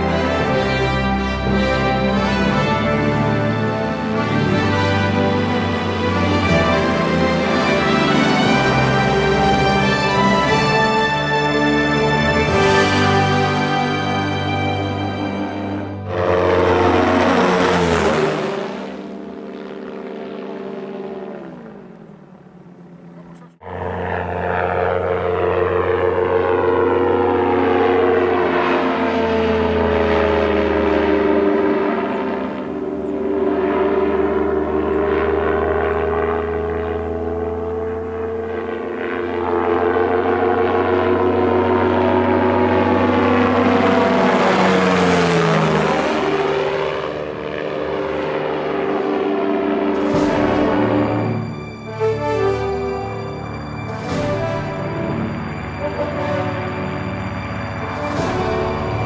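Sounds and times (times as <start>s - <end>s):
motorised hang-glider engine drone: 0.0s - 59.0s.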